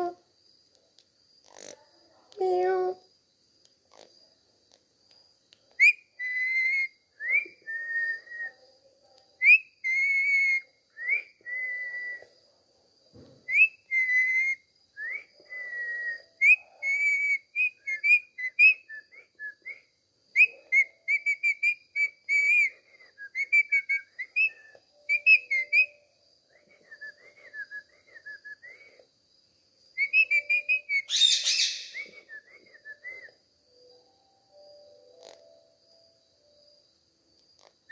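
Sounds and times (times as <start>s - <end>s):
parakeet whistling: 23.4s - 26.0s, 30.0s - 32.2s
parakeet chirpy warbles: 30.1s - 32.0s
parakeet squawk: 31.0s - 32.0s.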